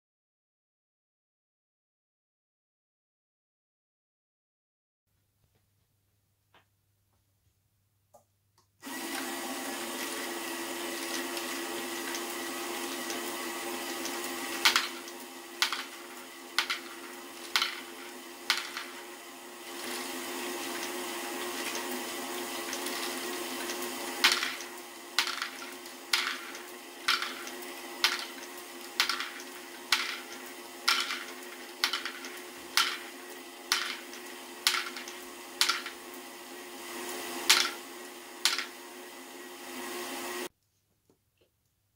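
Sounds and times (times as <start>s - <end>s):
toy electric motor humming: 8.8s - 38.8s.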